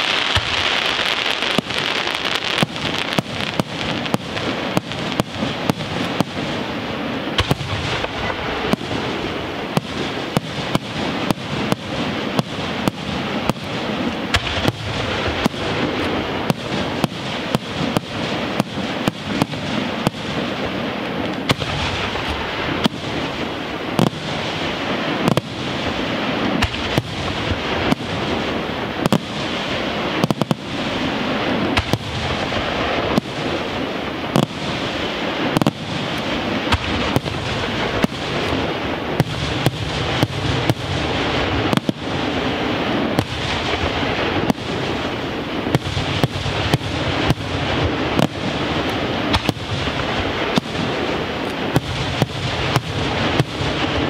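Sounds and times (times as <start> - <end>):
rumble and crackle of fireworks: 0.0 - 54.0.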